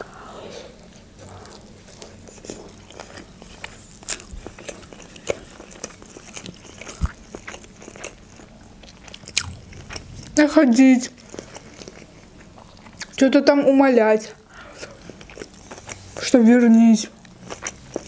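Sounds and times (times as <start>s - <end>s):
wet chewing clicks and smacks: 1.5s - 10.4s, 11.2s - 13.2s, 14.8s - 16.3s, 17.1s - 18.0s.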